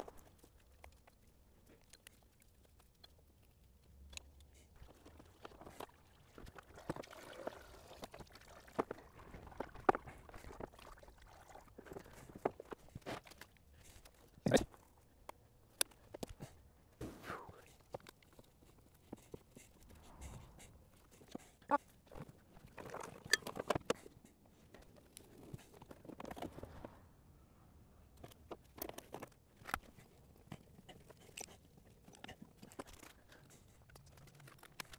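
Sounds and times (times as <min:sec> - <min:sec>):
clicks and knocks of handled parts: 0:00.0 - 0:04.6, 0:22.1 - 0:26.9, 0:28.1 - 0:34.9
rustling of hoses and parts: 0:11.8 - 0:20.0.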